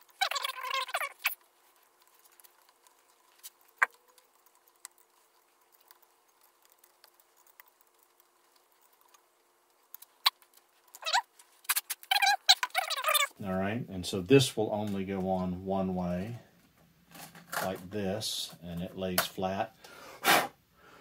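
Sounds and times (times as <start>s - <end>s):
small parts clicking and tapping: 0.0s - 13.3s
rubber o-rings squeaking: 0.0s - 13.4s
faint steady hum: 0.0s - 21.0s.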